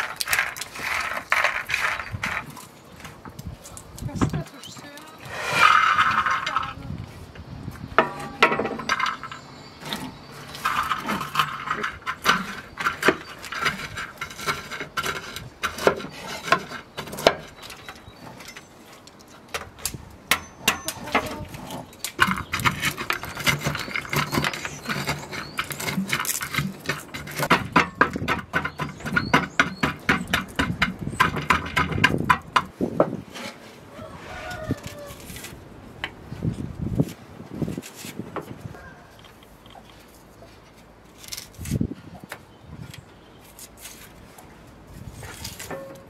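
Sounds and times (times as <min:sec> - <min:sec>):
stone crushing nuts in metal pan: 0:08.0 - 0:18.6, 0:19.4 - 0:32.7.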